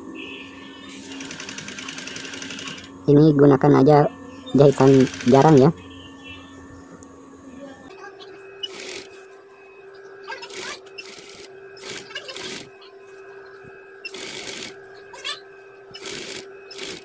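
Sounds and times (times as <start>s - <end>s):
motor hum: 0.0s - 17.0s
sewing machine stitching: 8.6s - 9.1s, 10.4s - 12.7s, 14.1s - 14.8s, 16.0s - 17.0s.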